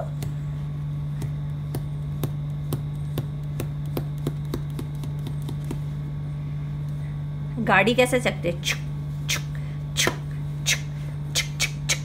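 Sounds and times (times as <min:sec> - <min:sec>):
steady low hum: 0:00.0 - 0:12.0
oil pastel tapping on paper: 0:01.1 - 0:05.9.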